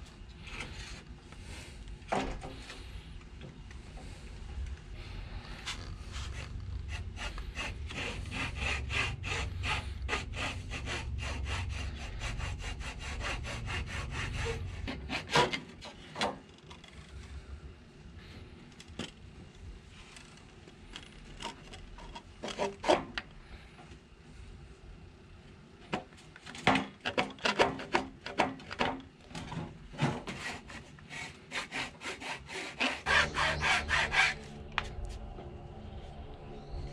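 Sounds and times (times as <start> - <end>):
hacksaw cutting wood: 6.9 - 15.7, 30.0 - 34.7.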